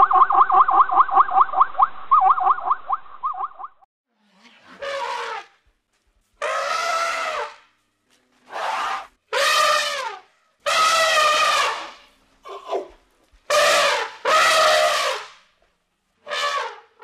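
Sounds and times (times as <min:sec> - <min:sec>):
elephant trumpeting: 0:04.4 - 0:05.6, 0:06.4 - 0:07.6, 0:08.5 - 0:12.9, 0:13.5 - 0:15.3.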